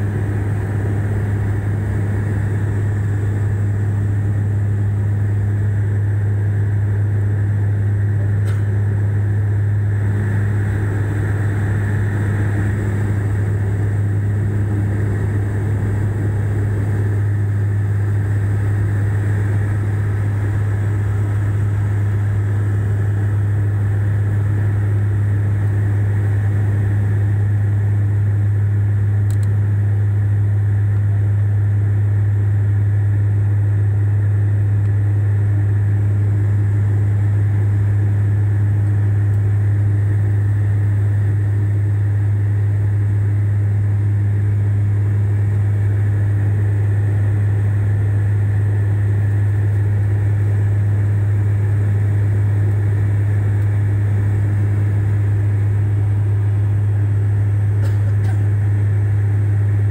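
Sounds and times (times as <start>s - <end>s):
air rushing in cabin: 0.0s - 6.5s, 8.4s - 27.4s
propeller plane engine drone: 0.0s - 59.9s.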